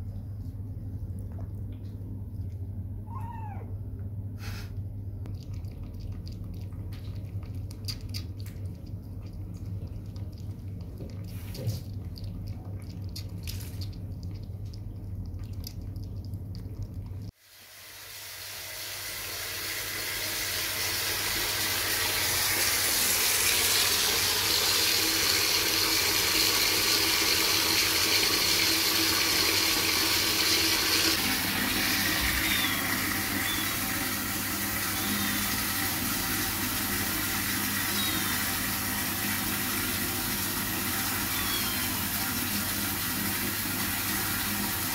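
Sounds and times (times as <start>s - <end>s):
low hum: 0.0s - 17.3s
kitten lapping water: 4.4s - 17.4s, 19.6s - 44.9s
water running into tub: 5.2s - 44.9s.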